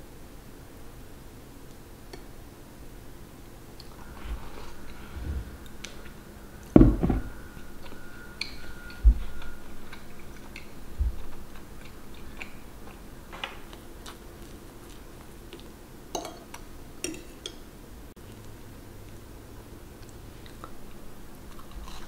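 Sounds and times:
dull knock: 6.8 - 7.3
chewing and biting: 9.2 - 15.8, 20.0 - 22.0.

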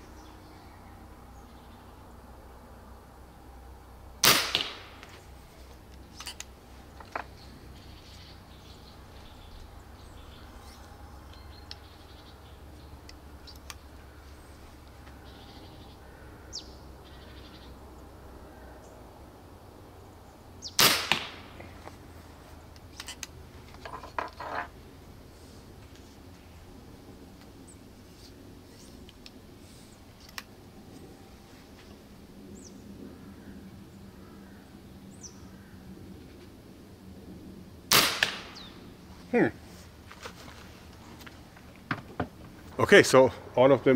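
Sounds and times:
airgun shot sharp crack: 4.2 - 5.1, 20.8 - 21.6, 37.9 - 38.7.

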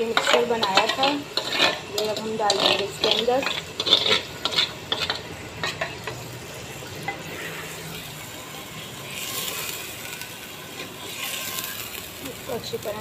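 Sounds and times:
chicken sizzling in oil: 0.0 - 13.0.

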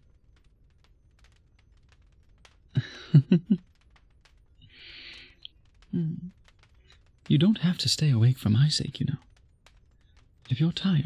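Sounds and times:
faint light clicks: 0.0 - 10.9
man chuckling softly: 2.8 - 3.6.

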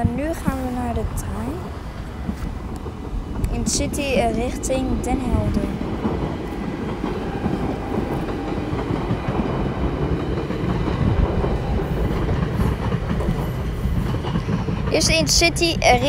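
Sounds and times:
train wheels rumbling: 0.0 - 16.0.

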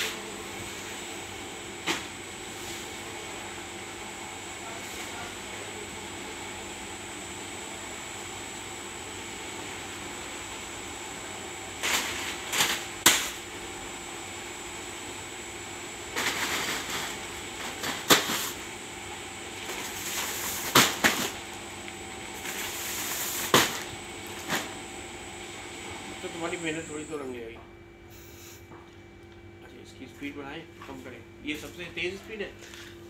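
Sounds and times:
belt conveyor humming: 0.0 - 27.6.

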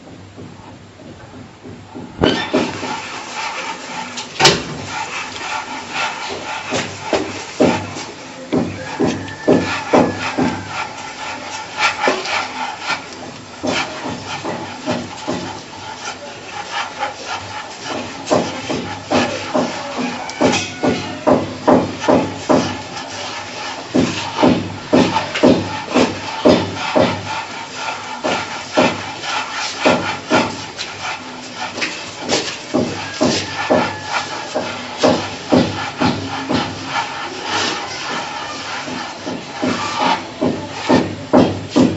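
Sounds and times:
palms rubbing semolina on tray: 2.2 - 41.9.

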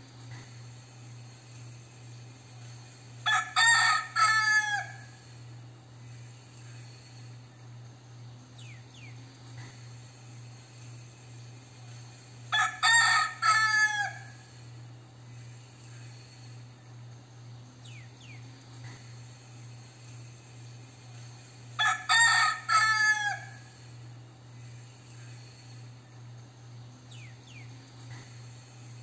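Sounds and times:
rooster crowing: 3.2 - 5.4, 12.5 - 14.6, 21.8 - 23.9.

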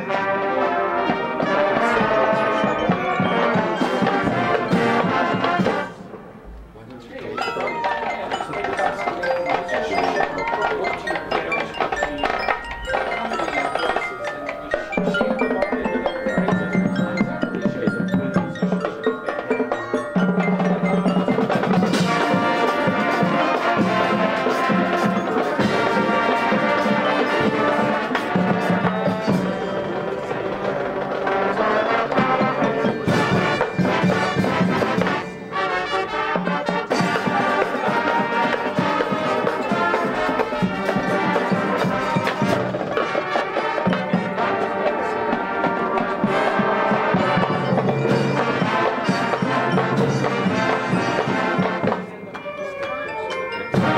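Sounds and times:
marimbas and mallet percussion: 0.0 - 6.1, 7.2 - 53.9
marching band playing: 0.0 - 53.9.

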